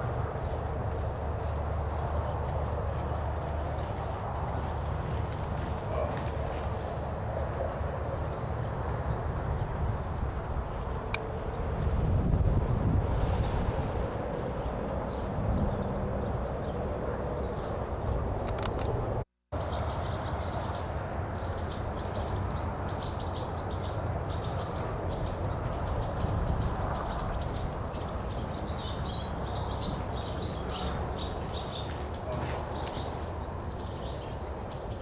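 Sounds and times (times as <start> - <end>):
small birds chirping: 19.6 - 35.0.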